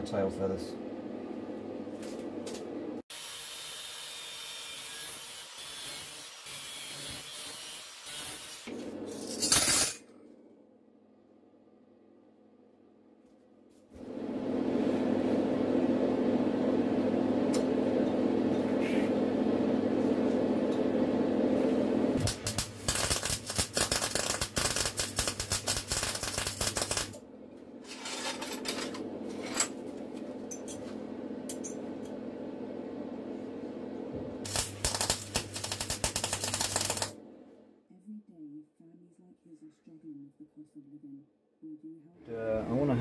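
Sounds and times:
welding arc sputtering and crackling: 0:22.2 - 0:27.2, 0:34.4 - 0:37.2.

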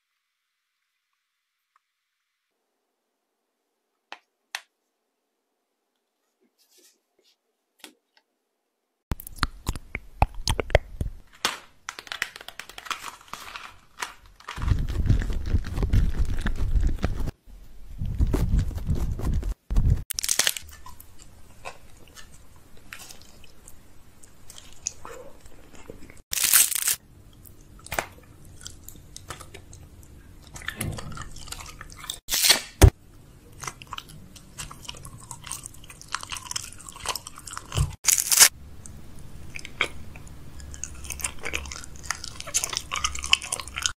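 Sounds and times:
crunching and chewing: 0:20.1 - 0:32.5, 0:33.4 - 0:43.9.

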